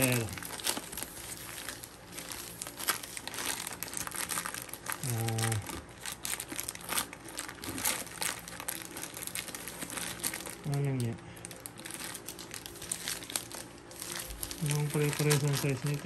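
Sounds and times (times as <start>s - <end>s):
plastic film crinkling: 0.0s - 16.0s
person humming: 5.0s - 5.8s.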